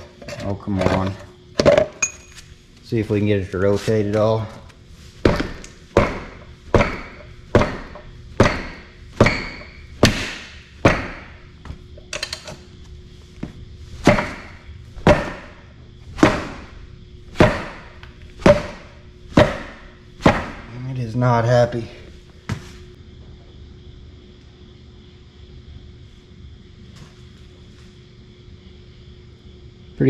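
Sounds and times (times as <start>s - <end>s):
heavy blows on metal ringing: 5.2s - 11.4s.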